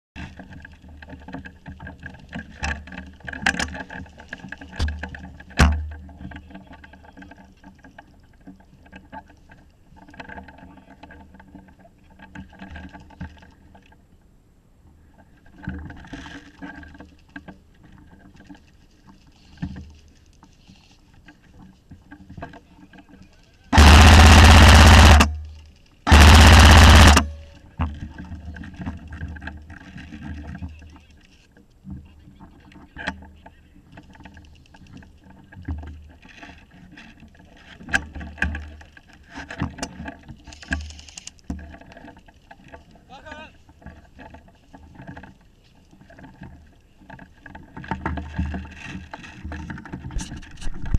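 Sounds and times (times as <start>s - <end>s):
airsoft rifle full-auto bursts: 23.8s - 25.4s, 26.1s - 27.4s.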